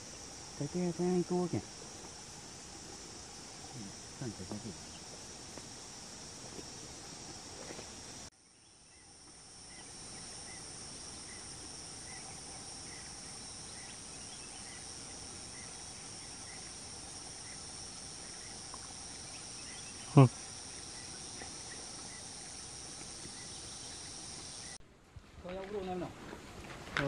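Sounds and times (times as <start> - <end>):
high-pitched insect chorus: 0.0 - 24.8.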